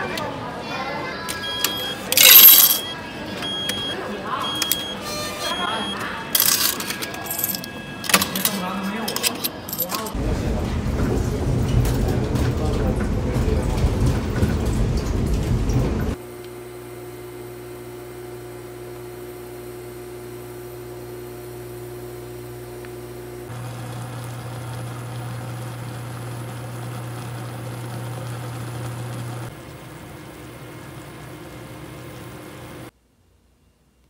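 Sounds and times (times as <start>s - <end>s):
induction cooker electrical hum: 13.3s - 34.0s.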